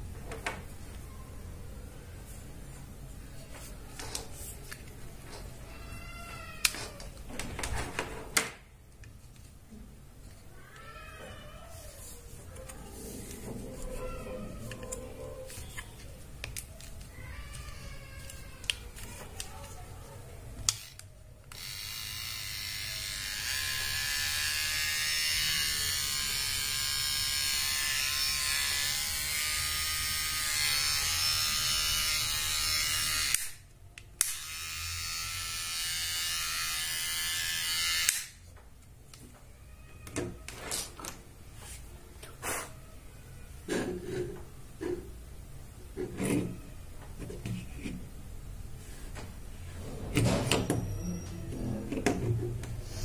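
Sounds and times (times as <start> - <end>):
hair trimmer buzzing: 21.6 - 33.5, 34.2 - 38.4.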